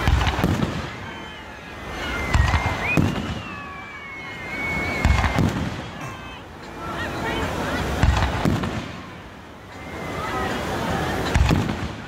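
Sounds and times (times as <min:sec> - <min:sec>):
fireworks booming: 0:00.0 - 0:01.4, 0:02.0 - 0:03.8, 0:04.6 - 0:06.4, 0:07.8 - 0:09.2, 0:11.2 - 0:12.0
high firework whistle: 0:00.0 - 0:06.4.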